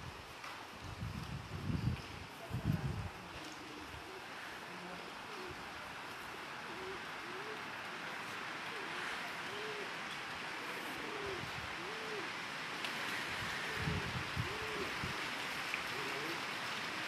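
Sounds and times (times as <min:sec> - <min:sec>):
outdoor background hiss: 0:00.0 - 0:17.0
pigeons cooing: 0:03.4 - 0:05.7, 0:06.6 - 0:12.4, 0:13.4 - 0:15.2, 0:15.8 - 0:16.6.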